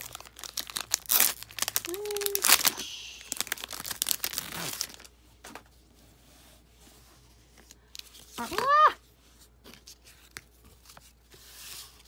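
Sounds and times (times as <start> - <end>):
foil wrapper crackling: 0.0 - 5.1.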